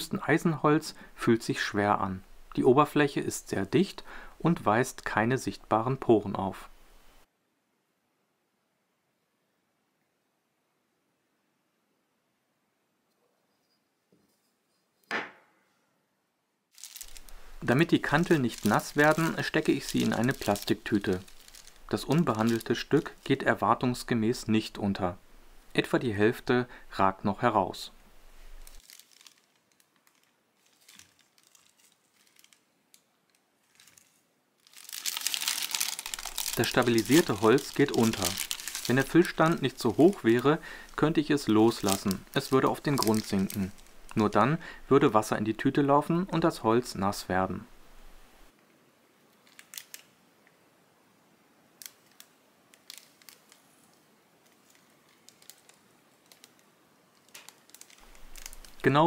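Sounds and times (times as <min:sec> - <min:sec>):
plastic bag crinkling: 0:16.7 - 0:24.1, 0:28.4 - 0:44.9, 0:49.4 - 0:50.1, 0:51.8 - 0:59.0.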